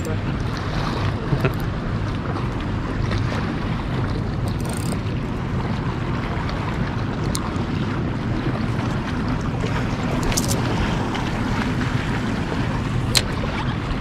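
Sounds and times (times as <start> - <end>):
sea washing against rocks: 0.0 - 14.0
wind buffeting the microphone: 0.0 - 14.0.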